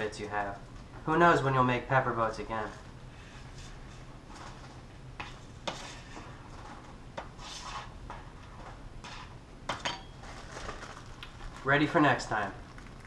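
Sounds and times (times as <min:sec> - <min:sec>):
plastic bag crinkling: 0:10.2 - 0:13.0.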